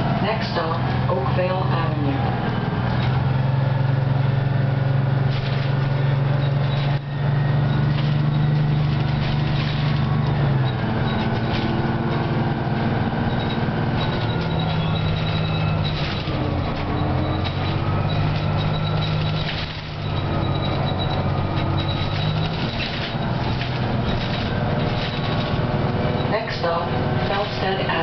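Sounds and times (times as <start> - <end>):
diesel bus engine: 0.0 - 28.0.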